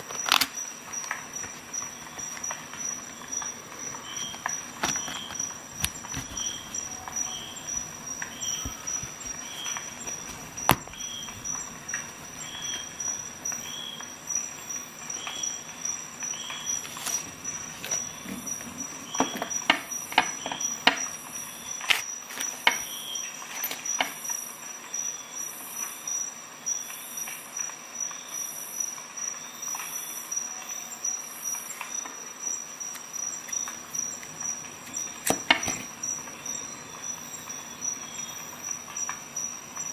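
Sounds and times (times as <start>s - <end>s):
multi-tool clicks: 0.0s - 2.6s
light rustling: 3.9s - 13.5s.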